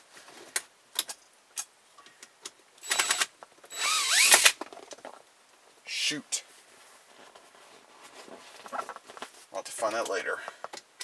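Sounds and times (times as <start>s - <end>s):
cordless drill whining: 2.8s - 4.6s.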